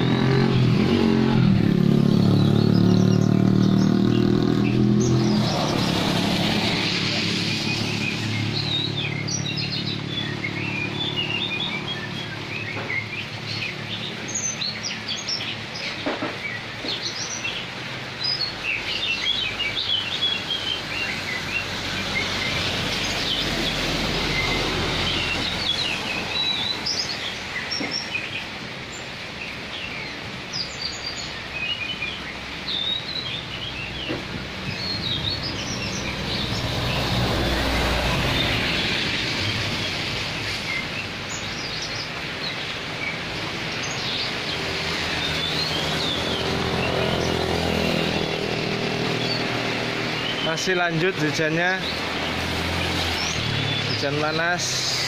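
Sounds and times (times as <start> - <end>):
truck driving past on wet road: 0.0 - 14.0, 19.0 - 27.5, 33.6 - 41.8, 43.2 - 54.8
small birds chirping: 0.0 - 55.0
rain falling: 0.1 - 54.0.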